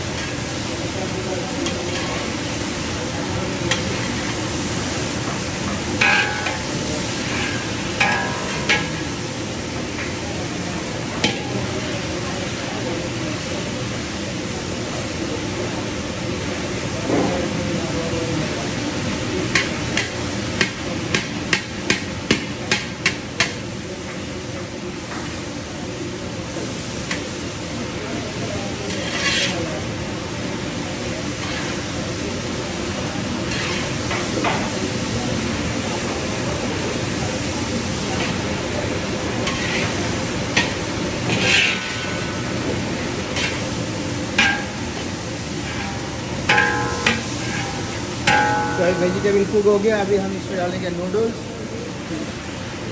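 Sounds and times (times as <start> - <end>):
frying hiss: 0.0 - 52.9
metal spatula clanking on wok: 5.7 - 9.2, 11.2 - 11.8, 39.4 - 42.4, 44.3 - 49.8
metal spatula scraping a wok: 28.9 - 29.7, 33.5 - 34.0, 39.4 - 40.0, 40.6 - 42.4, 43.3 - 43.7, 45.6 - 49.7.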